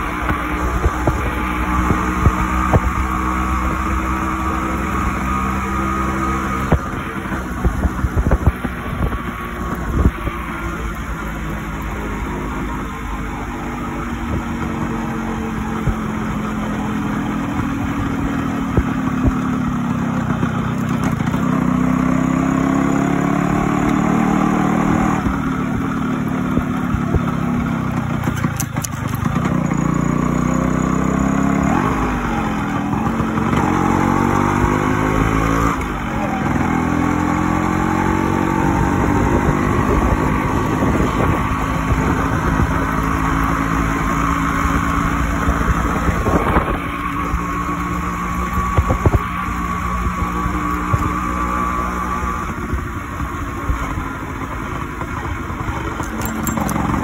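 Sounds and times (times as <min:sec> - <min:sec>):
motorcycle engine revving through gears: 0:00.0 - 0:57.0.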